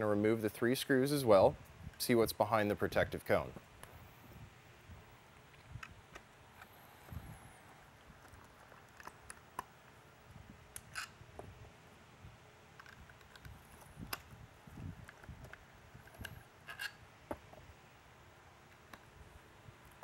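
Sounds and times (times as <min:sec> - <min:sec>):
screwdriver clicks and scrapes: 0:10.7 - 0:11.2, 0:15.0 - 0:17.0.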